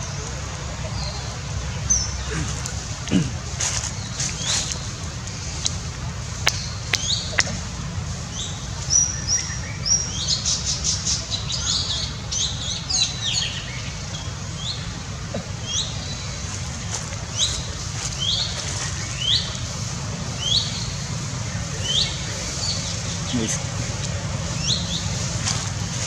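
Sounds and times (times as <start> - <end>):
small birds chirping: 0.0 - 26.0
steady low hum: 0.0 - 26.0.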